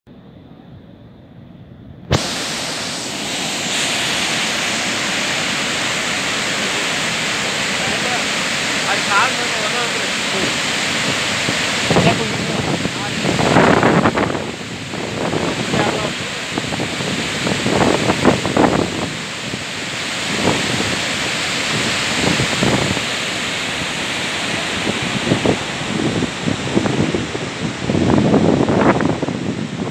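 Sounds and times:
waterfall rushing: 0:02.1 - 0:29.9
wind buffeting microphone: 0:10.3 - 0:29.9.

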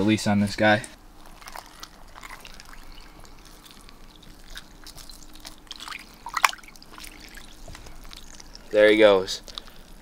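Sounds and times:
water lapping and dripping: 0:01.2 - 0:10.0
small splashes: 0:01.4 - 0:08.6.

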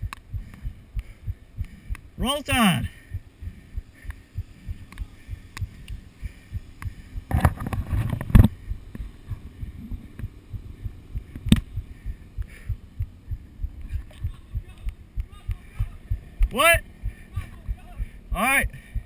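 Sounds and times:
muffled thumps of carried camera: 0:07.3 - 0:09.4
sharp click: 0:11.4 - 0:11.7.

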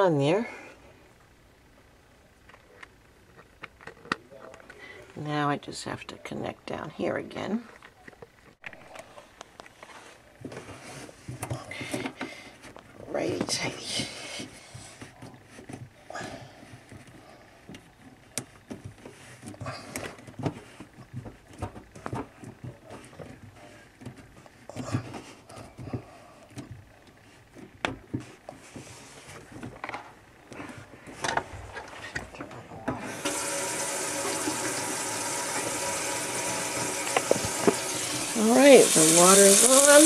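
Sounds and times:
water running into sink: 0:33.0 - 0:40.0.

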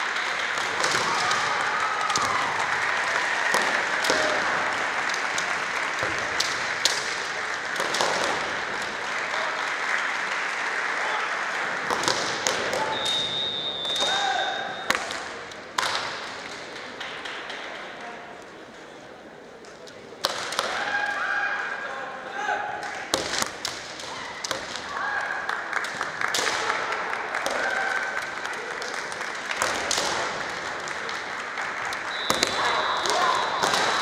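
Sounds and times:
spectators applauding: 0:00.0 - 0:14.6, 0:24.9 - 0:34.0
fencers shouting: 0:14.0 - 0:14.9, 0:32.1 - 0:34.0.

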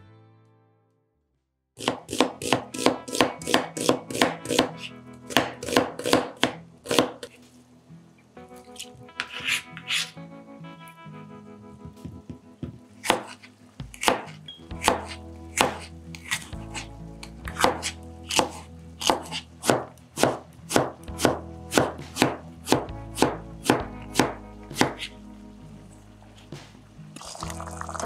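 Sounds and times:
knife strokes hitting cutting board: 0:08.8 - 0:10.1, 0:11.9 - 0:16.9, 0:17.5 - 0:25.1.

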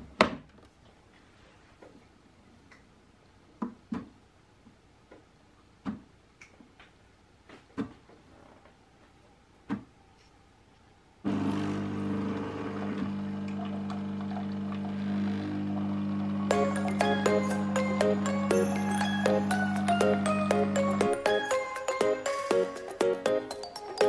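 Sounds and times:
pump humming: 0:11.2 - 0:21.1.

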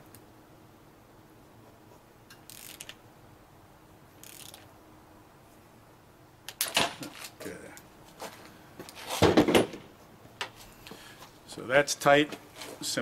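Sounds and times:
ratchet wrench clicking: 0:02.3 - 0:03.0, 0:04.2 - 0:04.6
wrench clacking: 0:02.3 - 0:03.0, 0:04.2 - 0:04.6.

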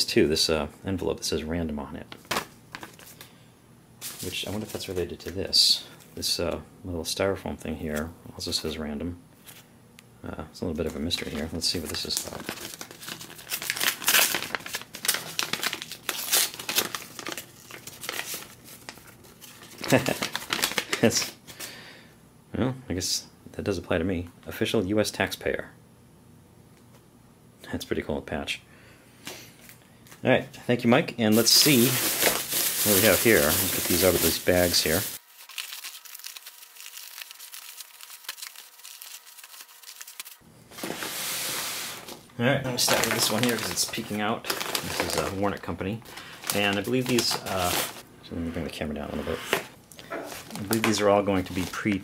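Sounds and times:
paper envelope crinkling: 0:02.1 - 0:03.3, 0:11.1 - 0:21.4, 0:31.3 - 0:42.2, 0:42.8 - 0:48.0, 0:50.3 - 0:52.0.

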